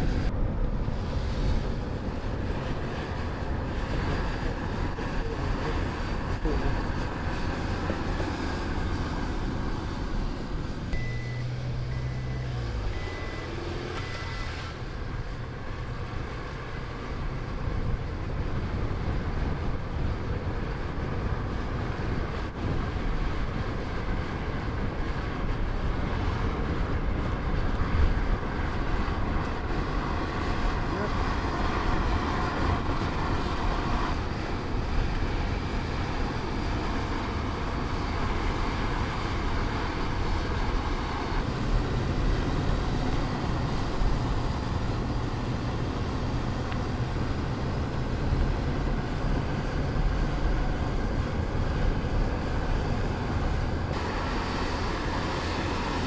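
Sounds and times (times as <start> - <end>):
low engine hum: 0.0 - 56.0
short high beeps: 11.0 - 14.6.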